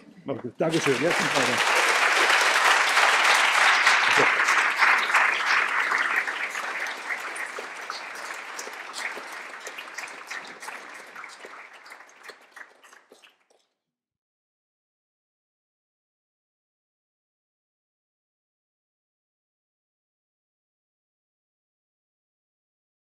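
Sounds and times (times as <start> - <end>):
audience applauding: 0.6 - 13.4.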